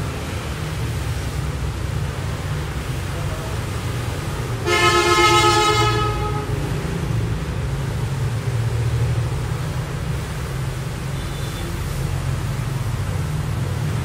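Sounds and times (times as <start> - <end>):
street traffic rumble: 0.0 - 14.0
vehicle horn honk: 4.6 - 6.6, 11.2 - 11.8.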